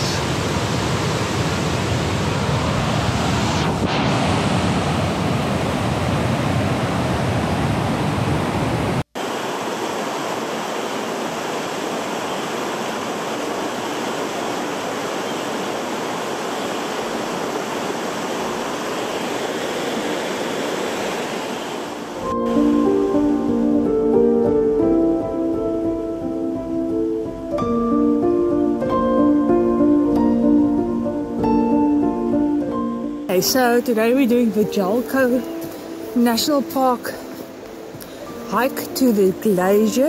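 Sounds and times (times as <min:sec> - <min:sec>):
river rushing over stones: 0:00.0 - 0:07.1, 0:09.2 - 0:23.1, 0:33.3 - 0:40.0.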